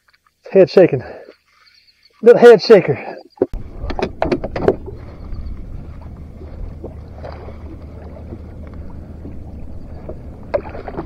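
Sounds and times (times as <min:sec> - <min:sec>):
sharp clicks and knocks: 0:03.4 - 0:05.0
water lapping against boat hull: 0:03.4 - 0:11.0
wind rumble on microphone: 0:03.6 - 0:11.0.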